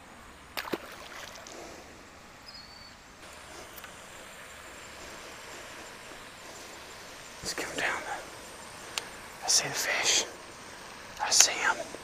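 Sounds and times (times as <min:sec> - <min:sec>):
faint outdoor background noise: 0:00.0 - 0:12.0
high chirp: 0:02.4 - 0:03.0.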